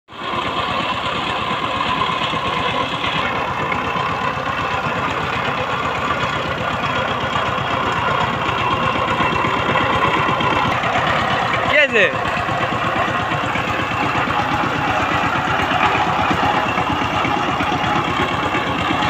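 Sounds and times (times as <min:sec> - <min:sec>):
diesel tiller engine running: 0:00.1 - 0:19.0.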